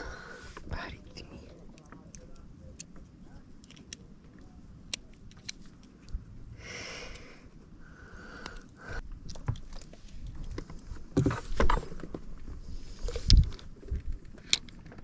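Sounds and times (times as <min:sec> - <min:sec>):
fishing tackle clicks and knocks: 0:01.5 - 0:06.2, 0:13.1 - 0:15.0.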